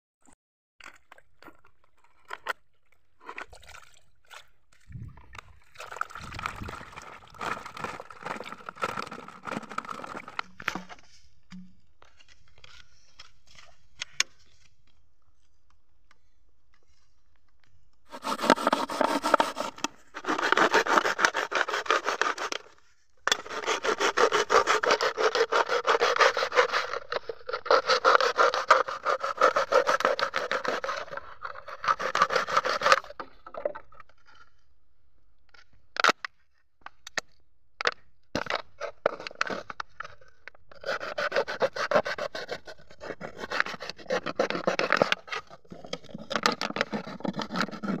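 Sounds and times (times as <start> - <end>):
knife sawing through plastic bottle: 6.3 - 10.8, 18.1 - 33.2, 40.7 - 48.0.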